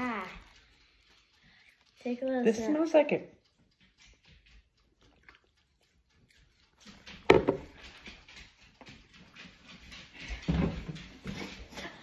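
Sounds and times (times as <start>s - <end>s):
glass knocking on counter: 7.3s - 7.6s.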